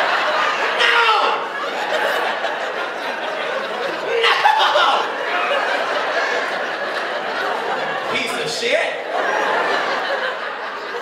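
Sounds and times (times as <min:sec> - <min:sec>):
audience laughing: 0:00.0 - 0:11.0.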